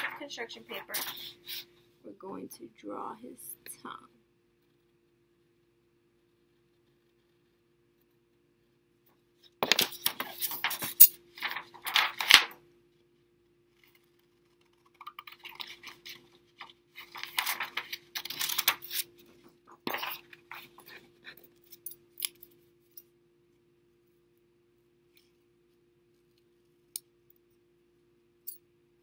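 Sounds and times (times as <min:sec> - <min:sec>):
paper crinkling: 0:09.6 - 0:12.5, 0:13.8 - 0:21.4.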